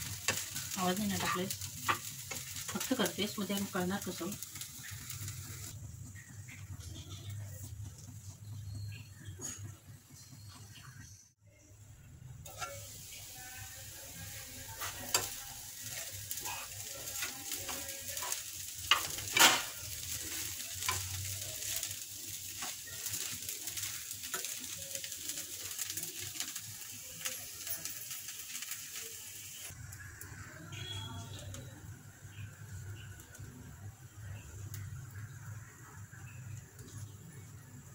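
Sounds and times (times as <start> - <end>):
food sizzling in a pan: 0.0 - 11.0, 12.4 - 37.9
spoon scraping and clinking on pan: 12.5 - 13.0, 16.0 - 21.2.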